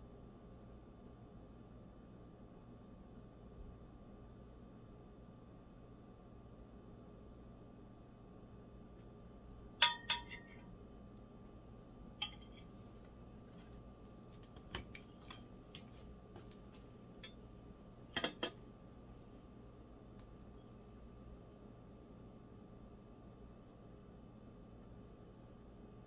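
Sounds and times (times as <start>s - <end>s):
metal pot and spoon clanking: 9.8s - 10.6s, 12.2s - 12.7s, 18.2s - 18.6s.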